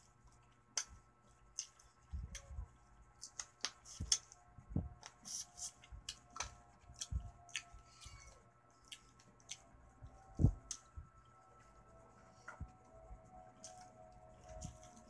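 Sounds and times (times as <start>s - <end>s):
wet eating smacks and clicks: 0.3s - 2.5s, 3.2s - 4.4s, 5.0s - 9.7s.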